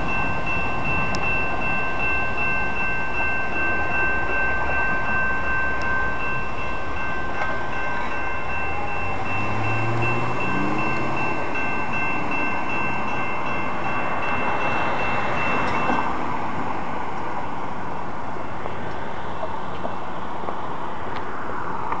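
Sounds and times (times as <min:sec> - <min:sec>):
high ringing tones: 0:00.0 - 0:16.2
train wheels on rail: 0:00.0 - 0:22.0.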